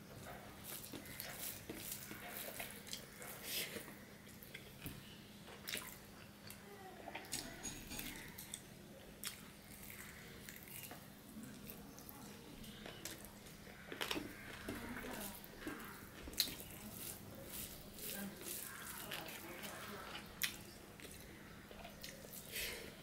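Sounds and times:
fingers working rice on plate: 0.3 - 3.9, 13.4 - 20.3
chewing and mouth smacks: 5.5 - 6.6, 9.2 - 12.1, 12.8 - 17.7, 18.4 - 22.5.

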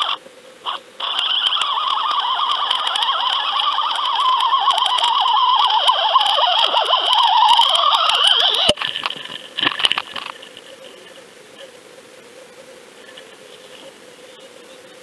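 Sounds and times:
wavering underwater whine: 0.0 - 11.2
fish splashing: 0.7 - 10.6.

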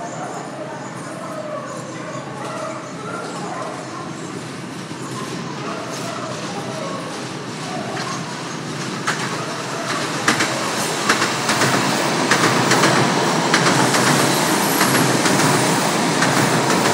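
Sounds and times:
electric train running past: 0.0 - 16.9
wheels clacking over rail joints: 4.8 - 16.9.

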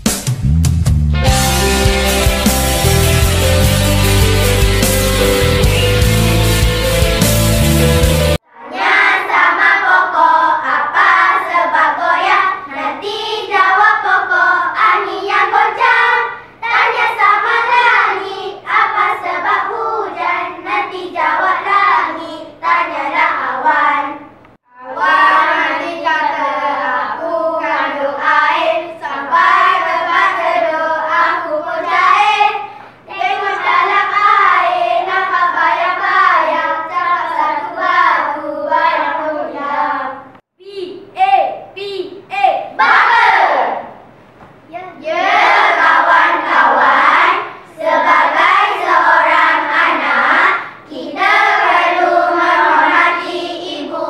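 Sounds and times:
children singing and chanting in unison: 8.4 - 40.4, 42.8 - 44.0, 44.9 - 54.0.

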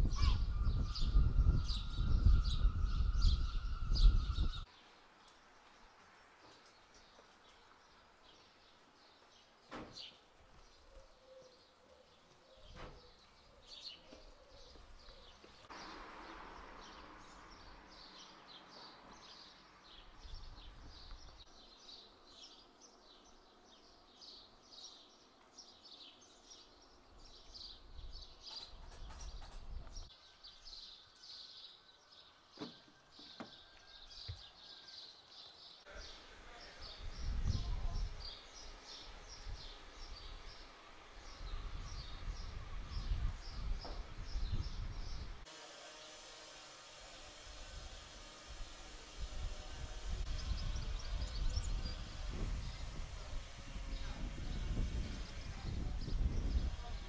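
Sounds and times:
small birds chirping: 0.0 - 45.4, 50.1 - 57.0
hiss: 45.4 - 54.2.

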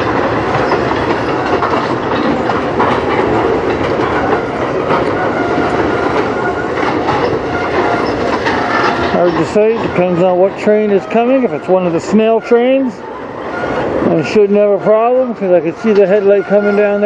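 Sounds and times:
train rumbling: 0.0 - 17.0
train wheels clacking on rails: 0.0 - 17.0
faint wheel squeal: 4.4 - 17.0.

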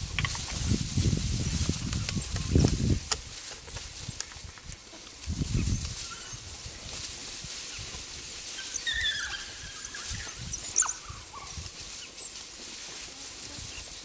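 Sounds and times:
low thuds of jostling animals: 0.0 - 4.2
dogs squealing and twittering: 5.7 - 6.5, 8.5 - 12.2.

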